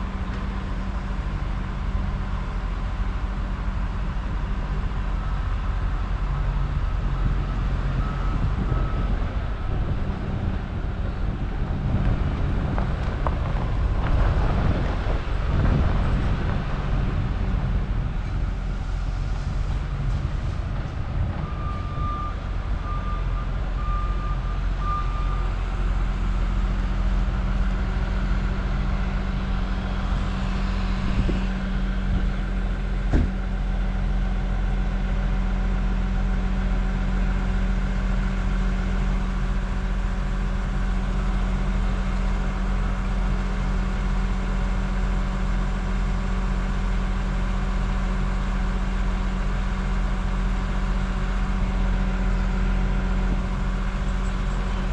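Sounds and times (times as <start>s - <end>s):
heavy machinery engine running: 0.0s - 54.9s.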